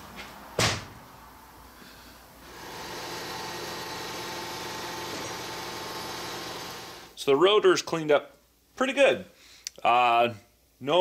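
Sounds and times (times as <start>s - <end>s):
machine hum: 2.4s - 7.2s.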